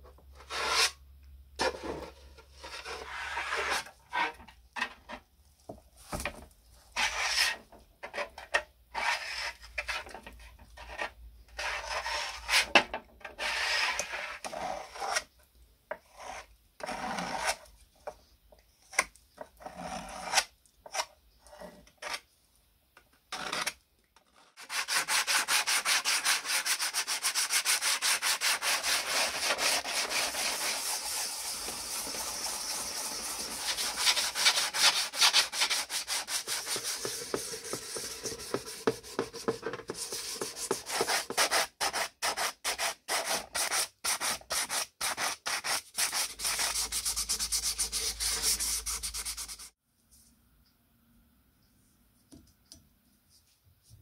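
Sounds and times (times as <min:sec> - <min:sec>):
sandpaper rubbing on metal: 0:24.6 - 0:39.2, 0:39.9 - 0:49.8.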